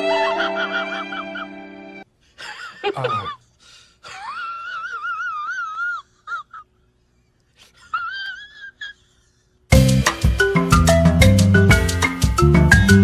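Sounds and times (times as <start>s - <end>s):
high wavering wail: 0.0s - 2.0s.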